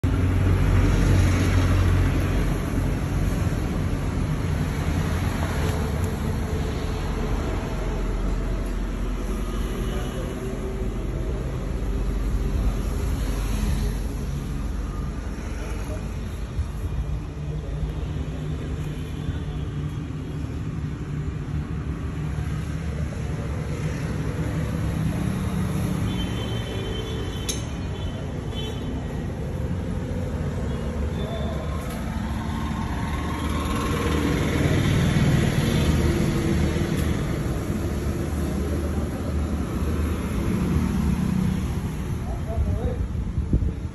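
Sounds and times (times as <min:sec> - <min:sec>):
road traffic rumble: 0:00.0 - 0:43.9.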